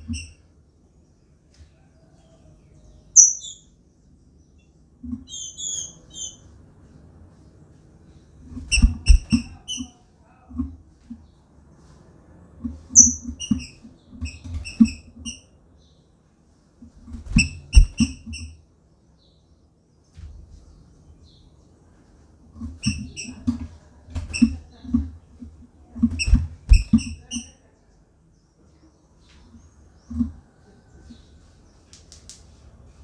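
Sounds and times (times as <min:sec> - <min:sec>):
bird calling in high chirps: 0:03.2 - 0:03.7, 0:05.3 - 0:06.4, 0:13.0 - 0:13.3
bird hopping on wooden perches: 0:08.4 - 0:15.4, 0:22.1 - 0:27.5, 0:29.3 - 0:33.0.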